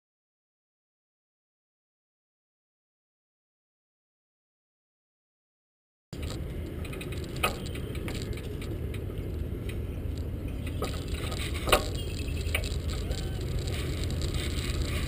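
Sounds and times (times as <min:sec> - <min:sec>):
cargo box rolling on pavement: 0:06.2 - 0:15.0
sharp clicks and rattles: 0:06.2 - 0:15.0.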